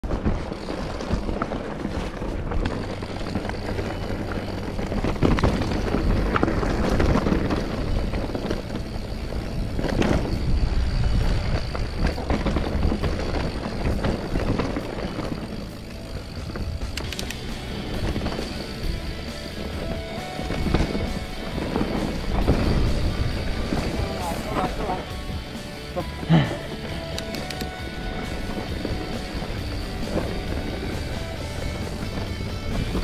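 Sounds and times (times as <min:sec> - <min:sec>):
bike rattling over bumps: 0:00.0 - 0:33.0
bike tyres rumbling on dirt: 0:00.0 - 0:33.0.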